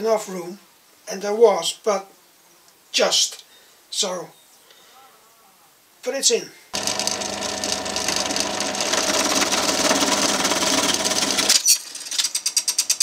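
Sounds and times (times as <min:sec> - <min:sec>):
rapid clicks: 0:06.8 - 0:13.0
scroll saw cutting wood: 0:06.8 - 0:13.0.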